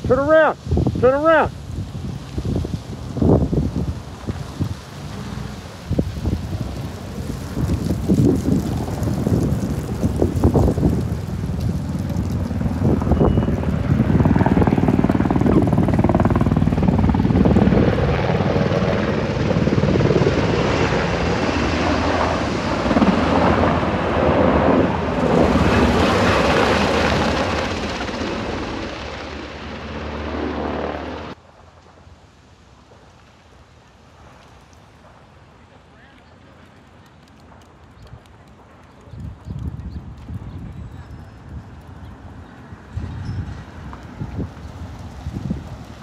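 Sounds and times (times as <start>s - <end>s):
helicopter rotor and engine: 8.3s - 31.4s.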